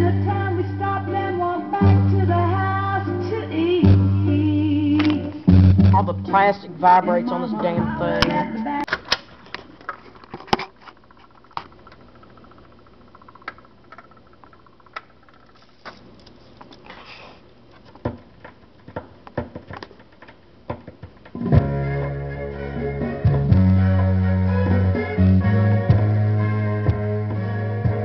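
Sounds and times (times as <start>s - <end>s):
music with guitar and bass: 0.0s - 8.9s, 21.4s - 28.0s
record surface noise clicks and pops: 8.1s - 16.8s, 17.7s - 21.6s.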